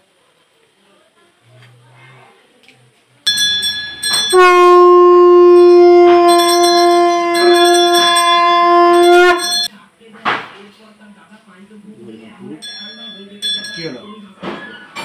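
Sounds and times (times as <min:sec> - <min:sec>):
hand bell ringing: 0:03.3 - 0:04.8, 0:05.6 - 0:09.7, 0:12.6 - 0:14.2
conch shell blown: 0:03.3 - 0:09.7.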